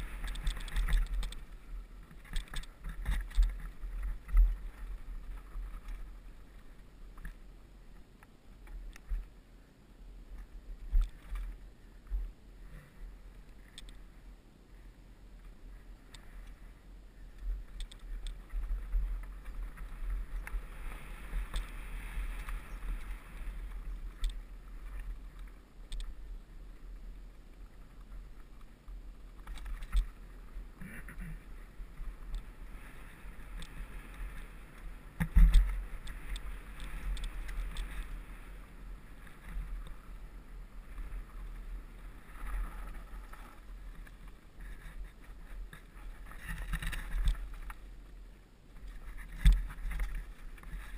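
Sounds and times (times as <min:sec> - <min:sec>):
bike clicks and rattles: 0:00.0 - 0:06.2, 0:17.3 - 0:24.4, 0:29.3 - 0:30.2, 0:33.5 - 0:38.3, 0:43.2 - 0:47.8
tyres on loose dirt and stones: 0:00.0 - 0:09.4, 0:15.4 - 0:50.9.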